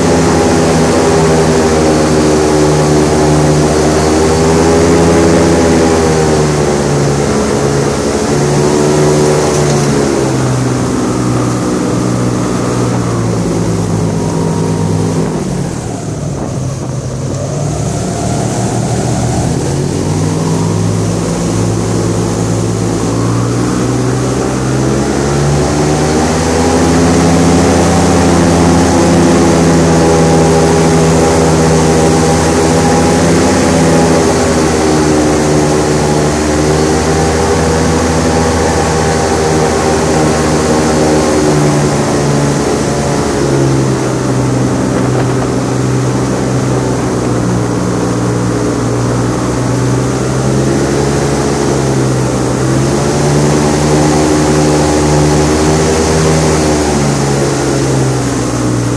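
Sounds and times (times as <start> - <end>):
airboat engine and propeller: 0.0 - 58.9.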